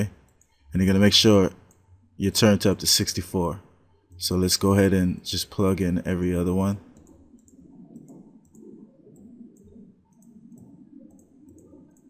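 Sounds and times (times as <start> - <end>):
computer mouse clicking: 6.9 - 12.0.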